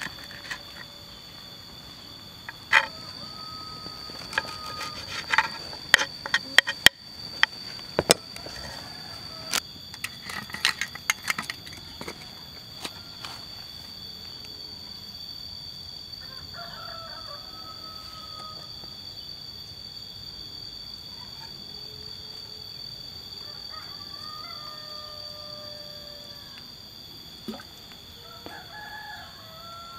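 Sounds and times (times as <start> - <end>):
high insect drone: 0.0 - 29.9
distant rooster crowing: 2.5 - 5.8, 8.0 - 9.6, 16.2 - 19.1, 23.3 - 26.7, 28.1 - 29.9.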